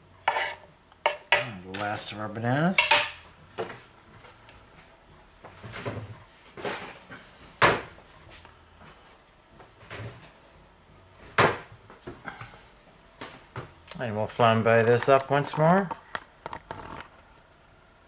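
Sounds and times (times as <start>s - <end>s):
kitchen knocks and thumps: 7.6s - 7.9s, 11.3s - 11.8s.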